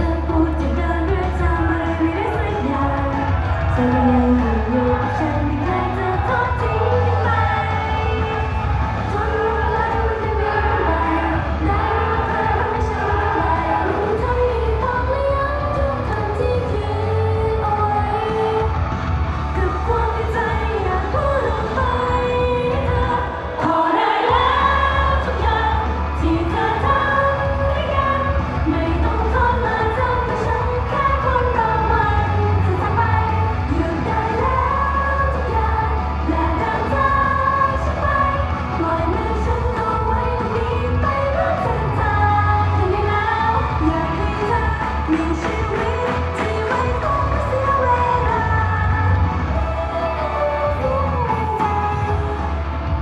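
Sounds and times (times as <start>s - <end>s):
pop backing track with heavy bass: 0.0s - 53.0s
woman singing into microphone: 0.0s - 53.0s.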